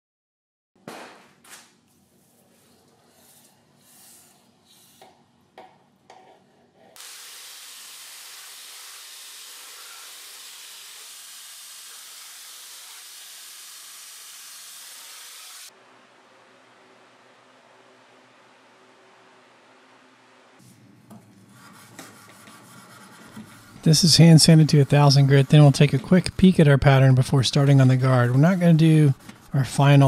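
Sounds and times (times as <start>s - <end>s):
belt grinder hissing: 7.0s - 15.7s
hot steel sizzling in water: 7.0s - 15.7s.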